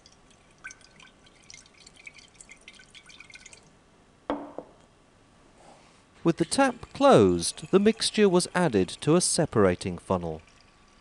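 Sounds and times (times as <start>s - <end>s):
drips and splashes: 0.0s - 3.7s
liquid sloshing in glass flask: 0.0s - 3.7s
knock: 4.3s - 4.8s.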